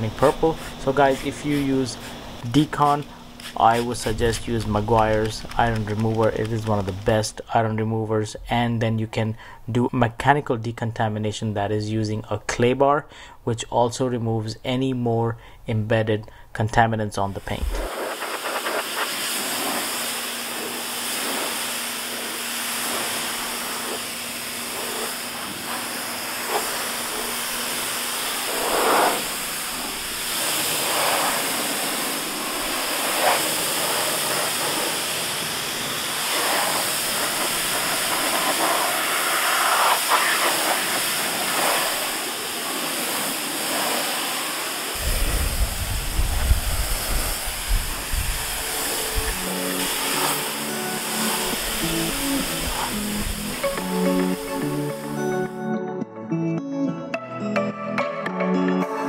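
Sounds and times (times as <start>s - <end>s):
pressure washer spraying water: 0.0s - 7.2s, 17.5s - 55.4s
low rumble: 45.0s - 49.4s.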